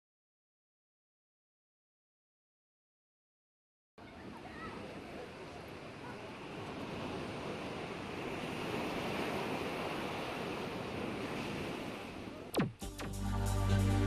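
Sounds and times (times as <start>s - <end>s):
small waves lapping: 4.0s - 12.8s
wind: 4.0s - 14.0s.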